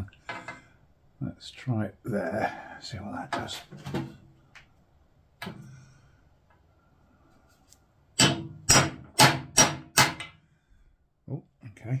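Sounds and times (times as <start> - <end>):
hammer striking steel punch: 8.2 - 10.3.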